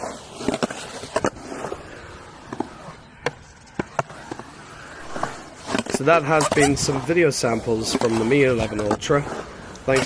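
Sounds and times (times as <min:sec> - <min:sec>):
skateboard wheels rolling on concrete: 0:00.0 - 0:10.0
skateboard clacking on ground: 0:02.4 - 0:10.0.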